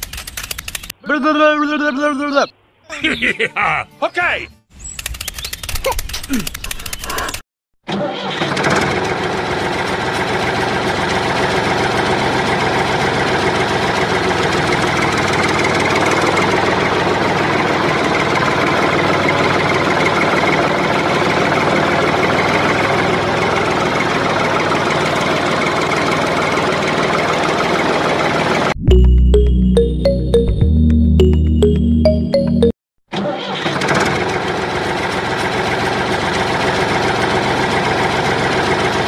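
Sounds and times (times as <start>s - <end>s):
tractor engine running at low revs: 8.4s - 30.4s, 33.8s - 39.0s.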